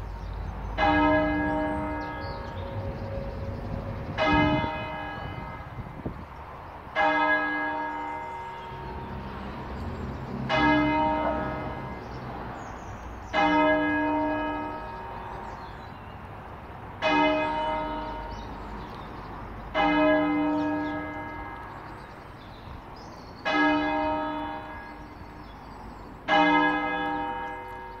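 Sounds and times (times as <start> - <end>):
church bell tolling: 0.8 - 5.8, 7.0 - 9.2, 10.4 - 12.2, 13.3 - 15.7, 17.0 - 18.6, 19.7 - 22.2, 23.4 - 25.4, 26.2 - 28.0.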